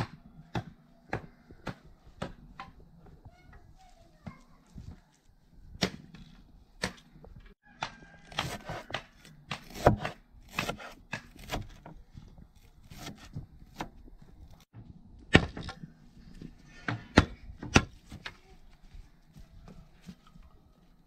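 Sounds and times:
knife chopping on wooden board: 7.8 - 11.8.

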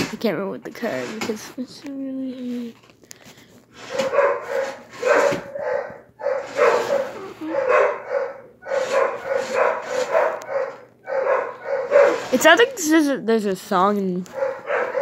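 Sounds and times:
dogs barking in chorus: 3.8 - 12.4, 14.3 - 15.0.

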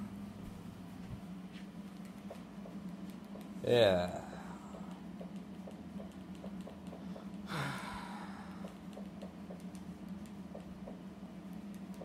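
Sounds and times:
low room hum: 0.0 - 12.0
person sighing: 7.4 - 8.6.

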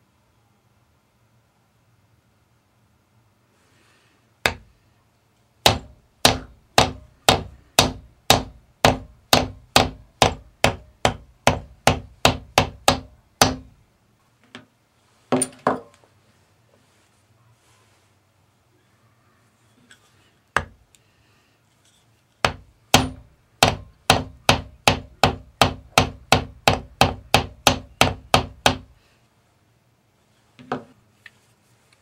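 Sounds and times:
mallet striking metal stamping tool: 4.5 - 4.7, 5.6 - 13.8, 22.4 - 28.9.

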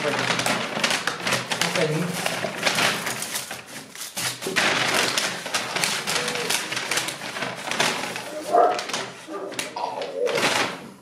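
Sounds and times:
paper bag crinkling and rustling: 0.0 - 11.0.

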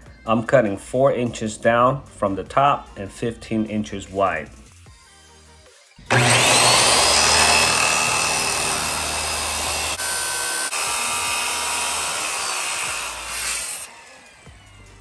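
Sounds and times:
circular saw cutting steel: 6.1 - 15.0.

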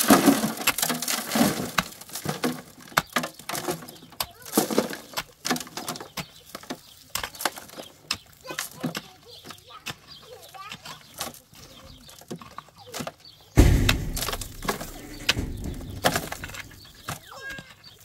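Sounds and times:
stones scooped into metal wheelbarrow: 0.0 - 8.8, 13.6 - 18.0
soil and stones crunching: 0.0 - 18.0.

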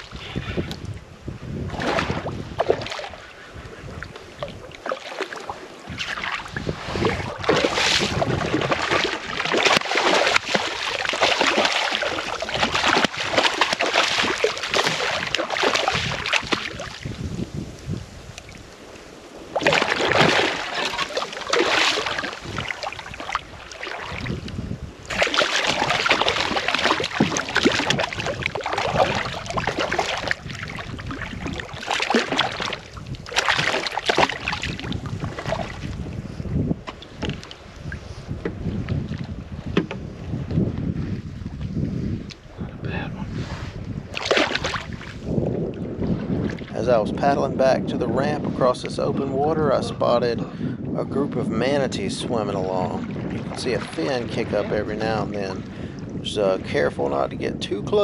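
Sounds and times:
water splashing: 0.0 - 1.0, 1.6 - 36.1, 36.8 - 38.0, 44.1 - 47.1, 52.3 - 56.3
wind rushing on microphone: 0.0 - 58.0.

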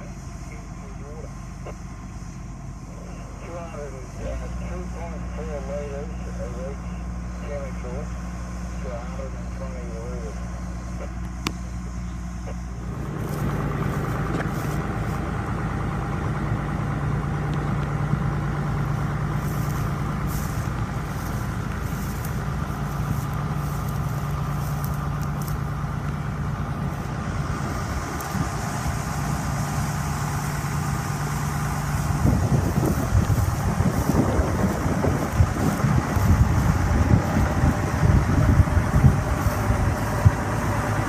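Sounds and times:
vehicle engine humming: 0.0 - 41.0
wind buffeting microphone: 26.6 - 30.0, 30.6 - 41.0.

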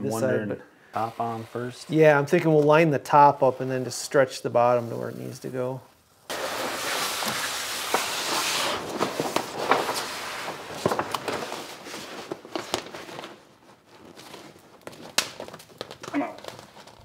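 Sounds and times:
vinyl sheet rustling and crackling: 4.6 - 17.0.

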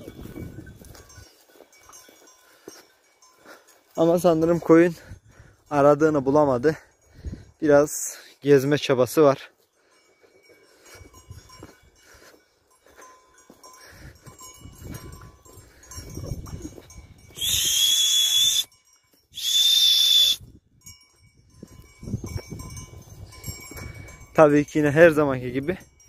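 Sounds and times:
shrill whistle blasts: 17.3 - 18.7, 19.4 - 20.4.

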